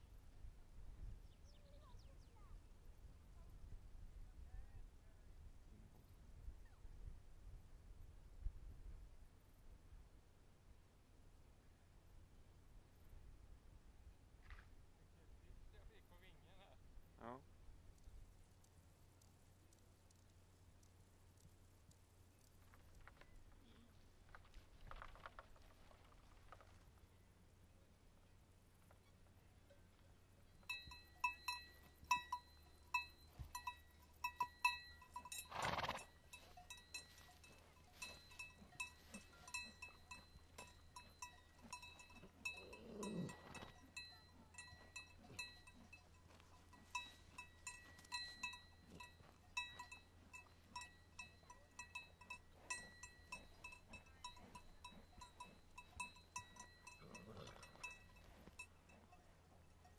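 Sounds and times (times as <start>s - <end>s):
livestock bells clanking: 30.6s - 59.9s.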